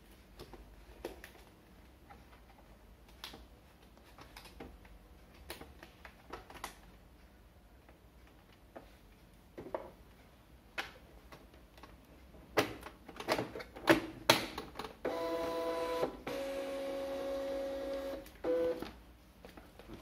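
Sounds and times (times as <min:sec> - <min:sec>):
printer feed motor whirring: 0:15.0 - 0:18.8.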